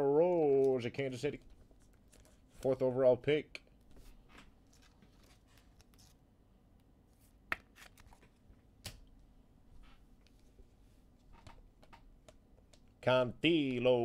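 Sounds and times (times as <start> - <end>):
cards sliding and rustling: 3.9 - 6.2, 7.1 - 8.4.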